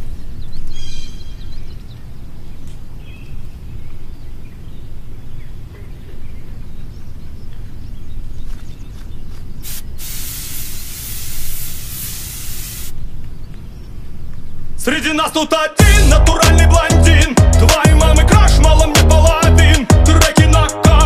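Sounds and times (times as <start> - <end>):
aerosol spray hissing: 9.6 - 13.0
low outdoor rumble: 13.0 - 20.2.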